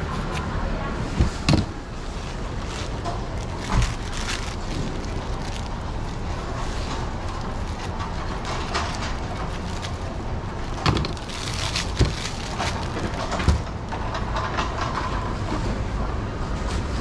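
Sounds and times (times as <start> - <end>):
steady low rumble: 0.0 - 14.2
plastic bag crinkling: 1.3 - 13.7.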